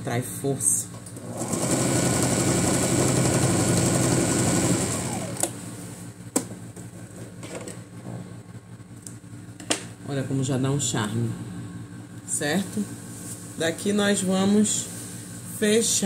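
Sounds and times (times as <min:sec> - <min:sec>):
sewing machine stitching: 0:01.2 - 0:05.5.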